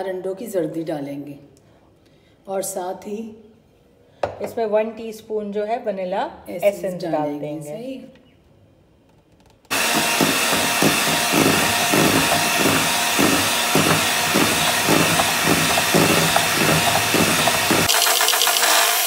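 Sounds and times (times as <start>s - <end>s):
electric hand mixer whirring: 9.7s - 19.0s.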